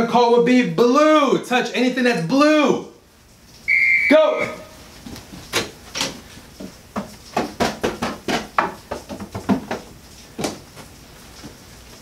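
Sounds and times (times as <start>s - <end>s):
slapping wooden shelves: 5.3s - 11.5s
tapping plastic bins: 5.6s - 10.6s.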